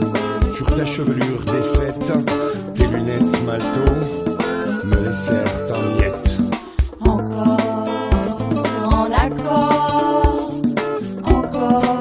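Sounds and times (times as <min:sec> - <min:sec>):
drum hits: 0:00.0 - 0:09.4
music with steady beat: 0:00.0 - 0:12.0.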